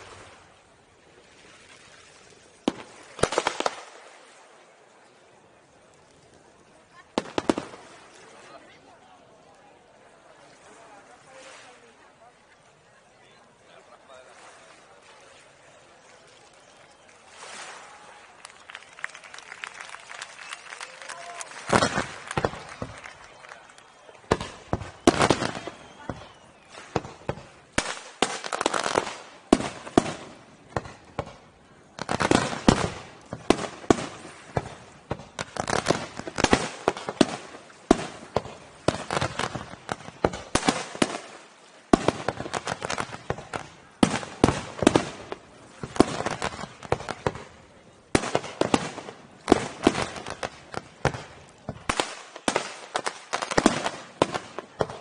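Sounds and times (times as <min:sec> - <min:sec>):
fireworks launching and bursting: 0:02.6 - 0:04.2, 0:07.1 - 0:08.0, 0:20.4 - 0:55.0.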